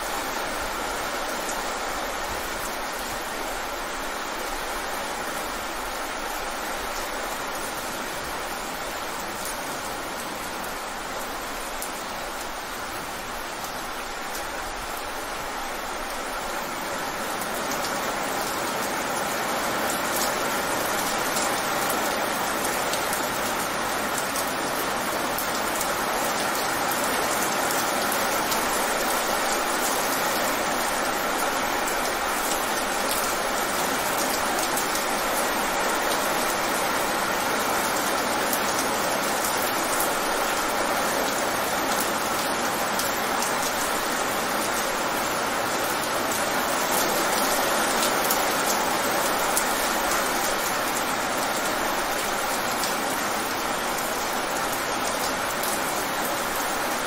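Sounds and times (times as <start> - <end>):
rain on wet pavement: 0.0 - 57.0.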